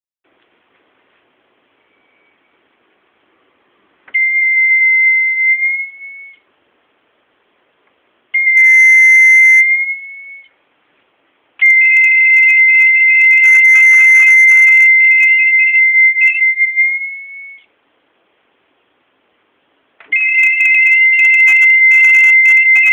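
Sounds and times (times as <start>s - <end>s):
electronic buzzer high tone: 1.8s - 2.6s, 11.6s - 17.7s, 20.1s - 22.9s.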